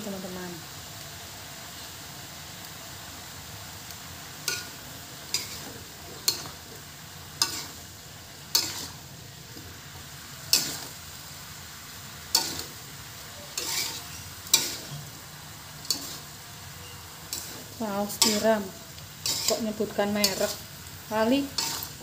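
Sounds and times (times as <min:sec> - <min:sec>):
cabbage sizzling: 0:00.0 - 0:22.0
metal spatula scraping a wok: 0:04.4 - 0:11.3, 0:12.2 - 0:22.0.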